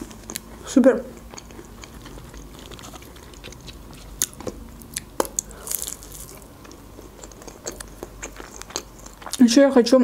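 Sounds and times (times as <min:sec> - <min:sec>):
chewing crunchy food: 0:00.0 - 0:09.8.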